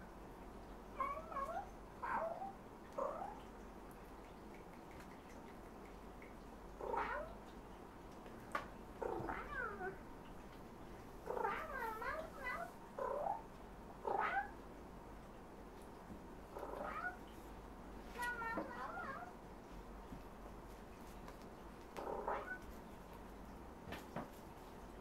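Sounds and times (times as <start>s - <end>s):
cats meowing: 6.8s - 7.4s, 9.0s - 10.0s, 14.1s - 14.6s, 16.6s - 17.2s, 22.0s - 22.6s.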